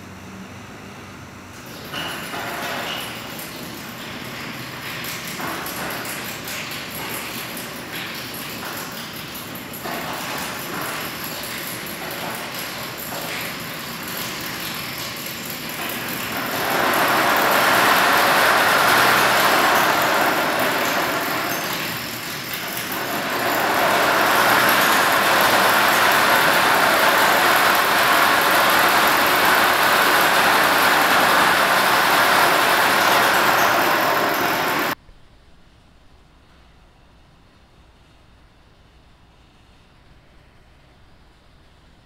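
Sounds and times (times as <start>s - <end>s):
loud dense noise of rotating objects: 1.6s - 35.0s.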